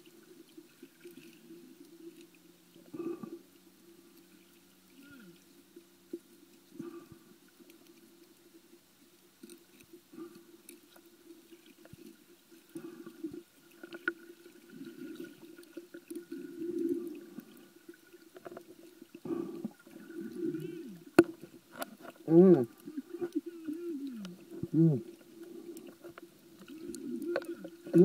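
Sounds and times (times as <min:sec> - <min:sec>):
muffled underwater water movement: 0:00.0 - 0:28.0
faint clicks: 0:15.0 - 0:28.0.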